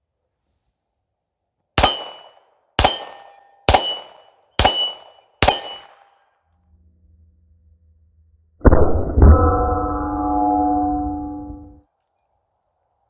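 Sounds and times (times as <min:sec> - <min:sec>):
pistol shots: 0:01.8 - 0:06.1
bullet clanging on steel target: 0:01.8 - 0:06.3.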